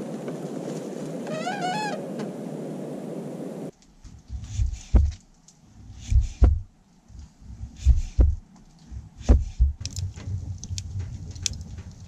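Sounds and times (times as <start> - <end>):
low rapid rumbling: 3.6 - 12.0
dull low thumps: 3.9 - 12.0.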